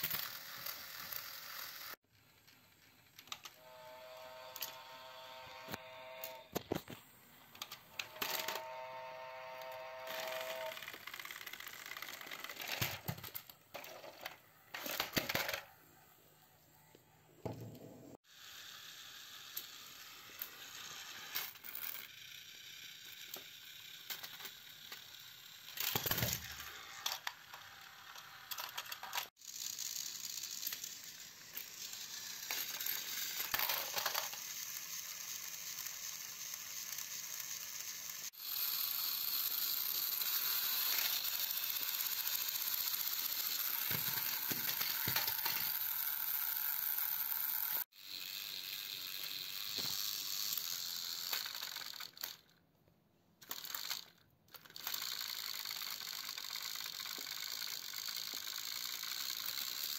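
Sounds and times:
plastic trains clattering: 0.0s - 3.6s, 10.2s - 15.7s, 23.2s - 37.9s, 39.5s - 47.3s
toy train motors whirring: 0.0s - 17.0s, 18.1s - 52.6s, 53.4s - 59.9s.

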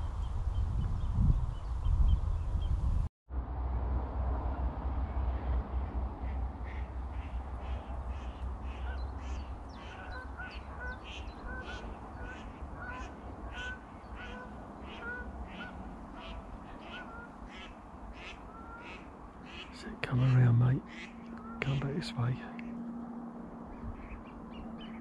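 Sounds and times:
low rumble: 0.0s - 9.8s
birds calling: 5.4s - 25.0s.

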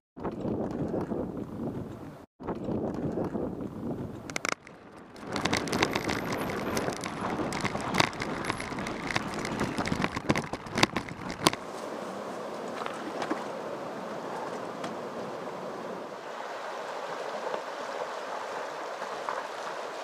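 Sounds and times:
wind noise on microphone: 0.2s - 11.7s
mountain bike rattling on rocky trail: 4.2s - 11.7s
stones knocking on bike frame: 4.3s - 11.6s.

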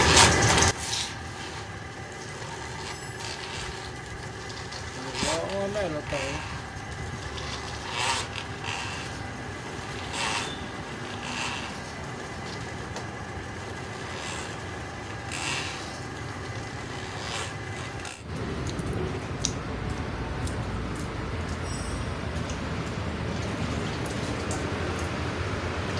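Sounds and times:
cable scraping rasps: 0.0s - 18.3s
drain cleaning machine whirring: 0.0s - 25.9s.

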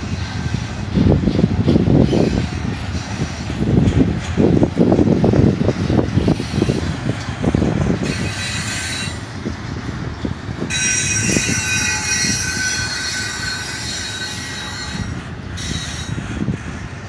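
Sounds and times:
train cars rumbling: 0.0s - 17.0s
metallic wheel squeal: 8.0s - 9.3s, 10.7s - 16.9s.

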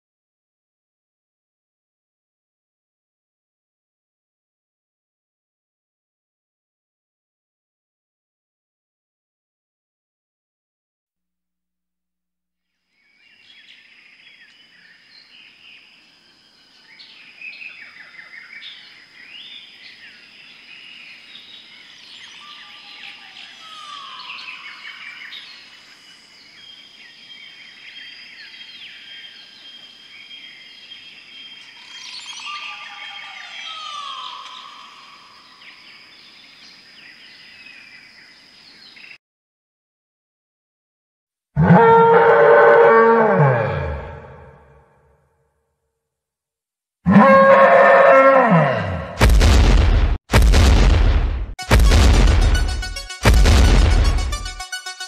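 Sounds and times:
birds chirping and trilling: 13.0s - 39.2s.

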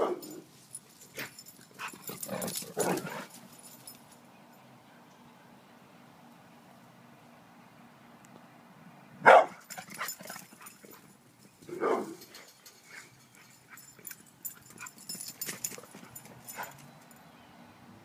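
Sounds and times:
dog barking: 0.0s - 0.4s, 9.2s - 9.6s, 11.7s - 12.2s.

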